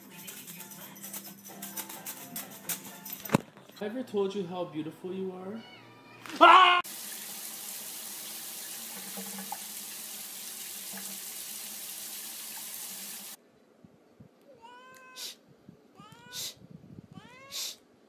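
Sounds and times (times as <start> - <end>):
cat meowing: 5.5 - 6.8, 14.5 - 17.8
water running: 6.8 - 13.4.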